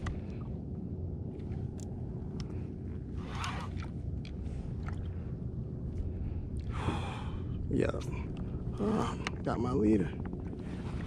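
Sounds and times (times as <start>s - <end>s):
water noise around a kayak: 0.0s - 7.6s, 10.2s - 11.0s
wind rumble: 0.0s - 11.0s.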